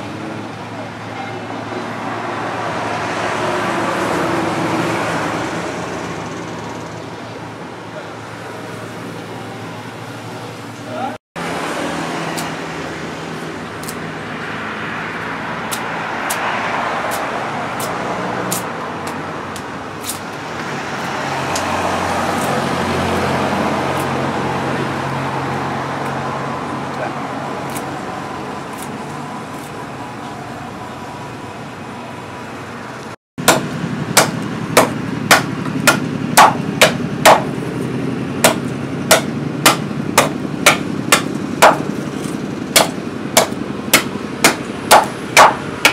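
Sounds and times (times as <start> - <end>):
billhook chopping wood: 33.4 - 37.5, 38.4 - 41.9, 42.8 - 45.9.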